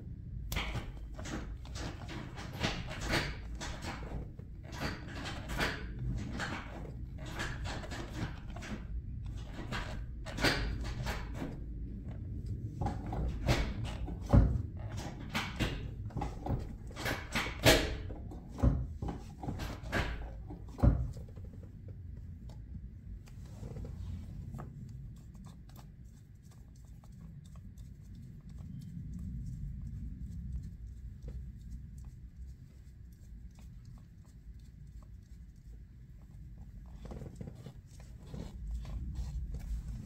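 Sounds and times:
sharp clicks and knocks: 0.5s - 23.9s
rubber boot rustling and creaking: 20.2s - 24.9s, 35.7s - 40.0s.

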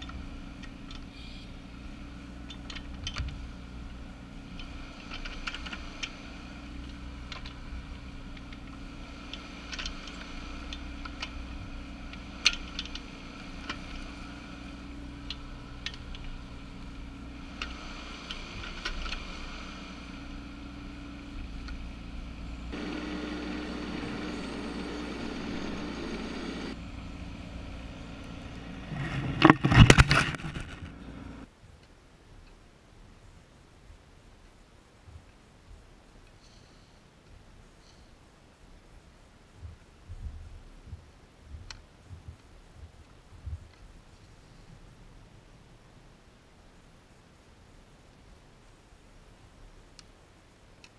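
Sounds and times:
excavator engine running: 0.0s - 31.5s
bucket and stones clanking: 29.0s - 30.9s.

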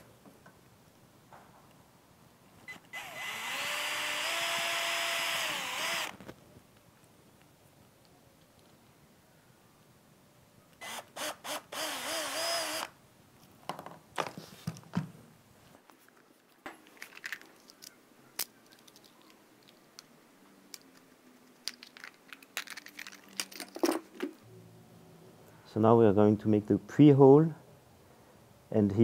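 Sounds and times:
cordless drill drilling into plastic: 2.7s - 6.2s, 10.8s - 12.9s
tools and parts clicking and knocking: 16.6s - 20.1s, 20.7s - 24.4s.

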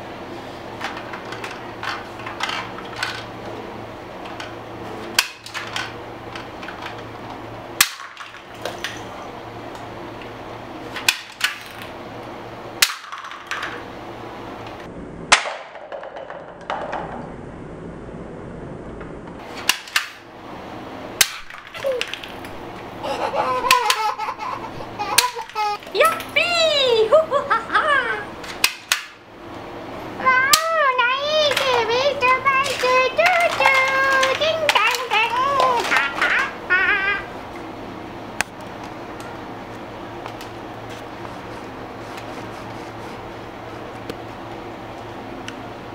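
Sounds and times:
low steady hum: 0.0s - 45.9s
people laughing: 23.0s - 25.8s, 27.0s - 28.3s, 35.8s - 37.3s.

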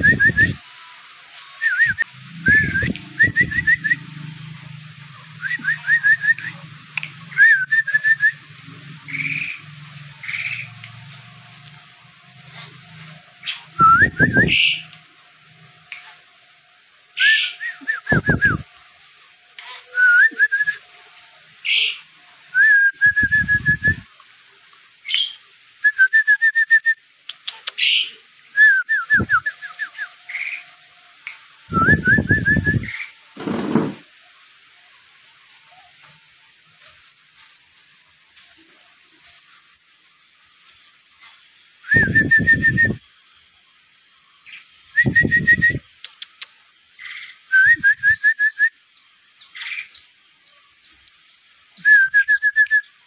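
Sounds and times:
bird whistling rising notes: 0.0s - 0.6s, 1.5s - 4.3s, 5.3s - 6.6s, 7.3s - 10.7s, 13.4s - 14.9s, 17.2s - 18.6s, 21.6s - 24.1s, 31.7s - 33.2s, 41.8s - 43.0s, 44.4s - 45.9s.

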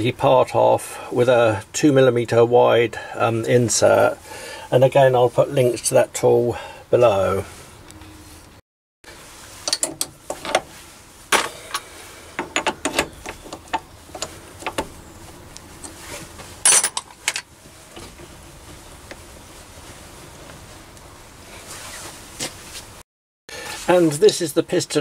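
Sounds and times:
metal tool holders clattering: 11.4s - 14.9s, 16.6s - 17.5s.

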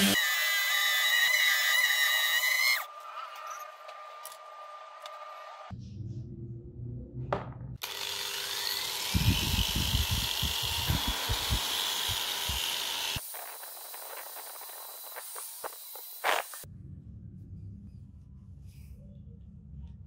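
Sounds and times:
angle grinder on metal: 0.0s - 2.9s, 7.8s - 16.7s.

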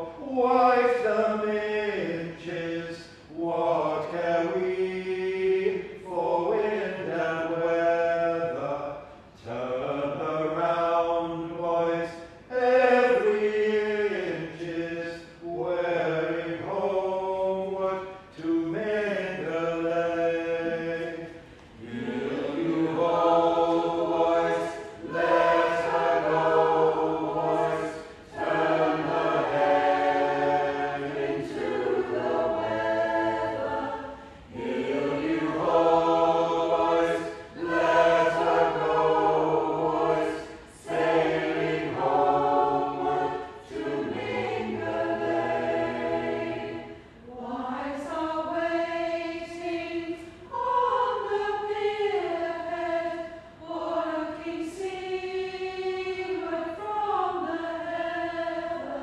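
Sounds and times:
mixed choir singing: 0.0s - 59.0s.

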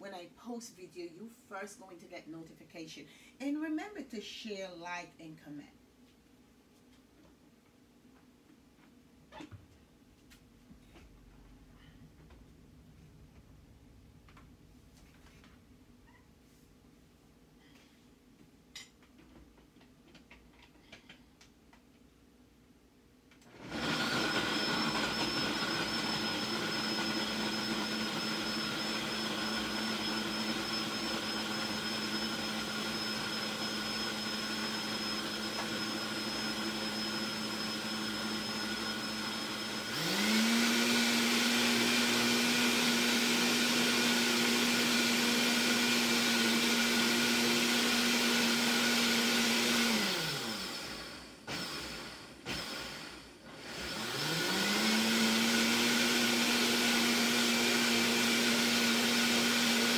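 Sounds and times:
blender motor running: 23.4s - 59.9s.

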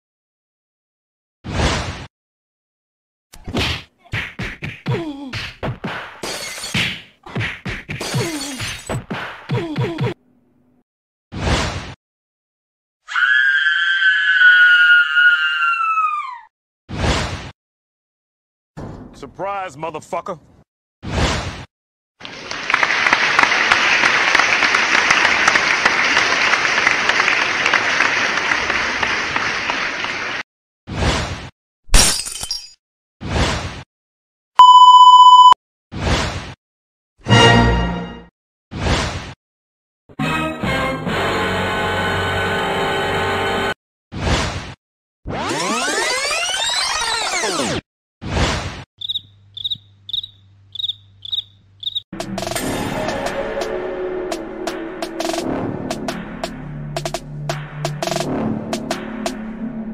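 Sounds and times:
crowd applause: 22.2s - 30.4s
sharp noisy hits: 54.3s - 59.9s.

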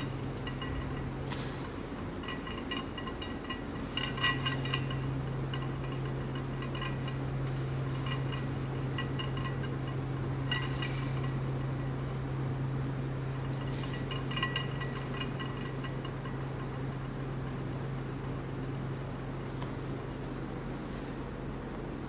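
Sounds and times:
light ringing clinks and taps: 0.0s - 11.8s, 13.3s - 18.4s
low room tone hum: 0.0s - 22.0s.

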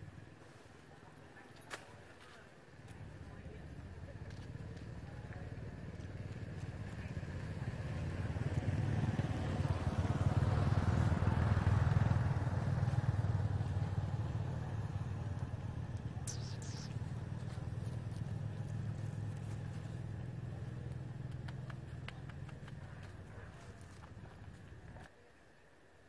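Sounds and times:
vehicle engine passing by: 6.0s - 24.9s.

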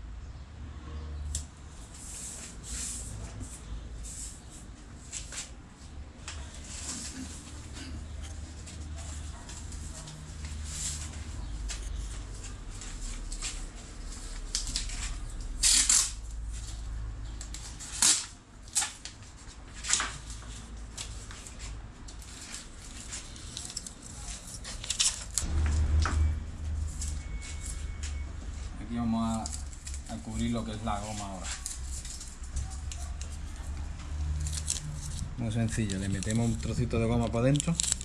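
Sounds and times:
masking tape ripping: 14.4s - 16.3s, 17.6s - 19.2s, 31.3s - 38.0s
paper rustling: 17.6s - 25.5s, 29.2s - 38.0s.

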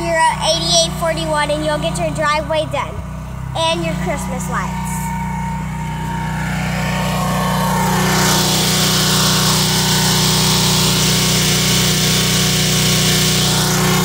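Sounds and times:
pressure washer engine running: 0.0s - 14.0s
high-pressure water spray hissing: 7.6s - 14.0s.

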